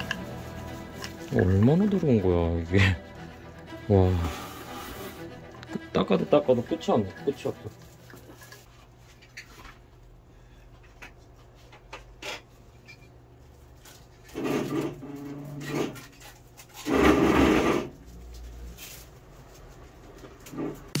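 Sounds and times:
wire brush scrubbing a tube: 0.0s - 2.5s.

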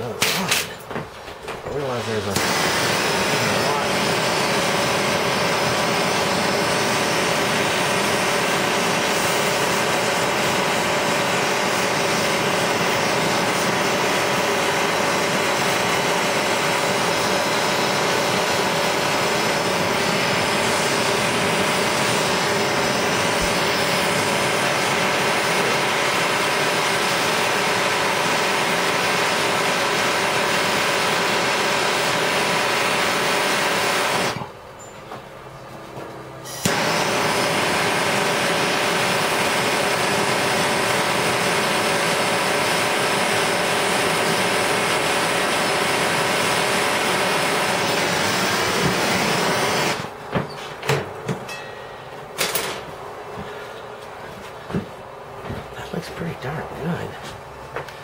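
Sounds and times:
propane torch hissing: 19.5s - 25.3s.

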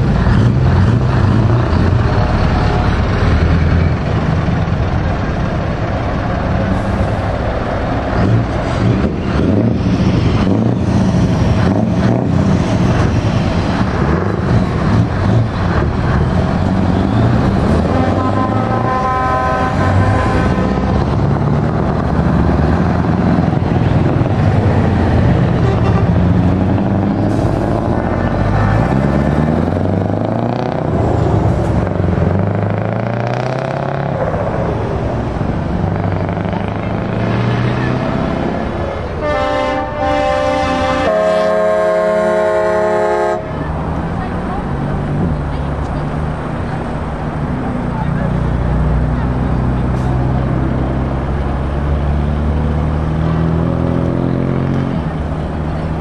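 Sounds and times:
truck diesel engines accelerating: 0.0s - 56.0s
truck horn: 17.6s - 21.3s, 25.4s - 26.7s, 27.3s - 29.6s, 39.2s - 43.7s.

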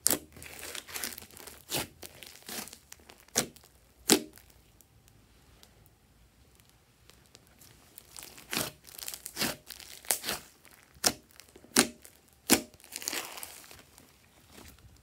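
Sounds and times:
slime popping and crackling: 0.0s - 4.6s, 8.0s - 13.9s.

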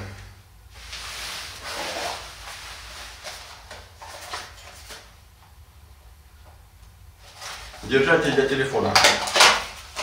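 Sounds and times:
short rustle: 0.7s - 5.1s.

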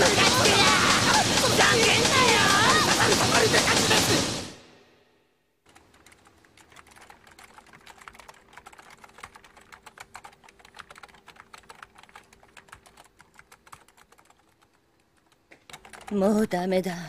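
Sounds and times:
typing on keyboard: 5.7s - 16.2s.

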